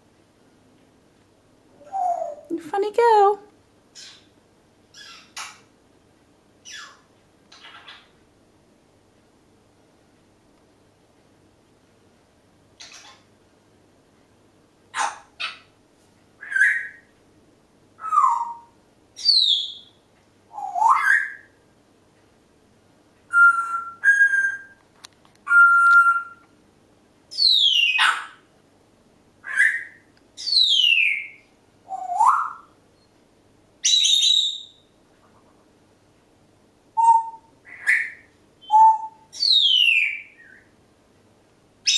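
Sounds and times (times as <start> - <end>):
parrot whistling calls: 25.4 - 26.4, 37.0 - 40.7.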